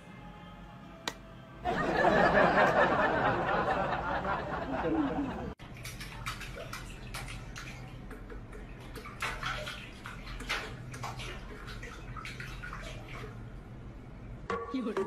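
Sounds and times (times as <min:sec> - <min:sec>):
cat pawing at water: 0:05.7 - 0:13.4.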